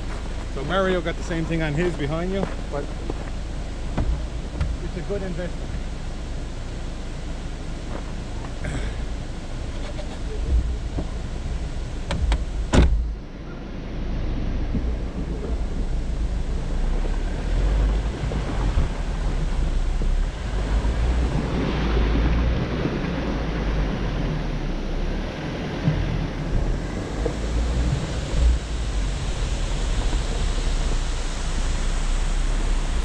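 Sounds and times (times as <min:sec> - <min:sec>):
off-road vehicle rumble: 0:00.0 - 0:33.0
wind noise on microphone: 0:14.4 - 0:33.0.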